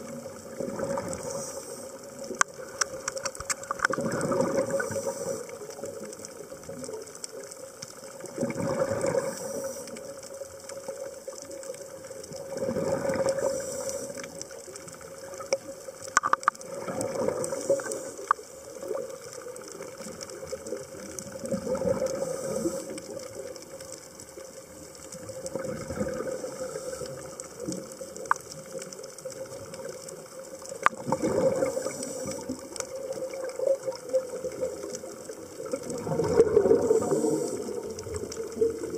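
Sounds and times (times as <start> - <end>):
bubbling exhalations: 0.5 - 1.5, 2.6 - 5.4, 8.3 - 9.7, 12.4 - 13.8, 16.2 - 18.3, 21.4 - 23.0, 25.4 - 27.3, 30.8 - 38.9
diver breathing through regulator: 1.0 - 2.0, 4.6 - 5.6, 8.6 - 10.0, 12.8 - 14.4, 17.3 - 18.4, 21.9 - 23.2, 26.2 - 27.4, 31.4 - 32.6, 36.6 - 38.0
sharp clicks: 2.3 - 4.0, 16.1 - 16.6.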